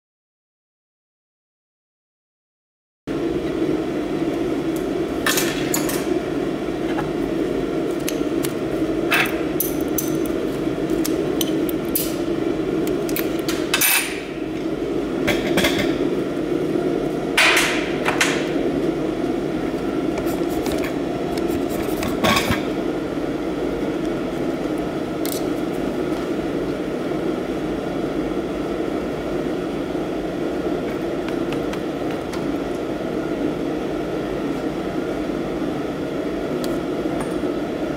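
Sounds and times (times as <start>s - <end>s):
steady low hum: 3.1s - 37.9s.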